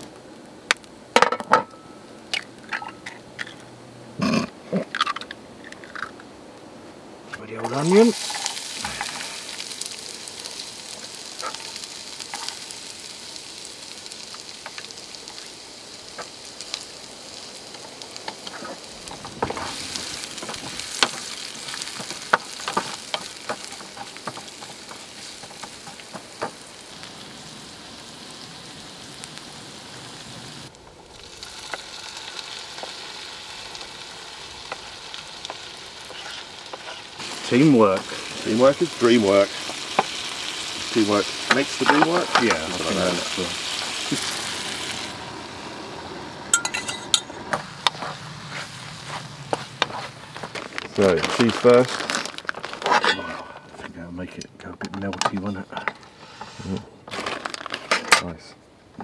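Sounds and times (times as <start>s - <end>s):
onion sizzling in a frying pan: 0.0s - 3.7s, 7.4s - 54.2s
wooden spatula scraping a pan: 36.0s - 37.2s, 47.8s - 51.4s.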